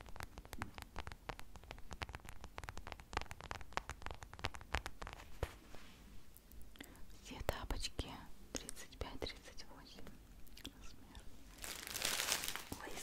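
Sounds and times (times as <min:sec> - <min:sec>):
fabric crackling against microphone: 0:00.0 - 0:06.3, 0:11.5 - 0:13.0.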